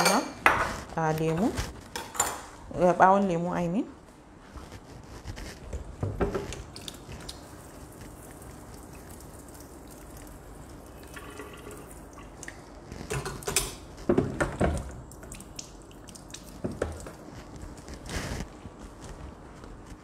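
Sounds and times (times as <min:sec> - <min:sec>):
tap water running into sink: 0:06.2 - 0:12.4.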